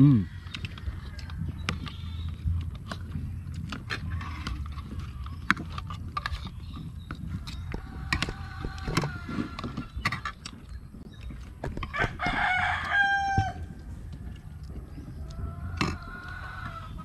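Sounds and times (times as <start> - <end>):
roosters crowing: 0.0 - 2.7, 6.7 - 10.6, 11.6 - 17.0
low steady rumble: 0.2 - 17.0.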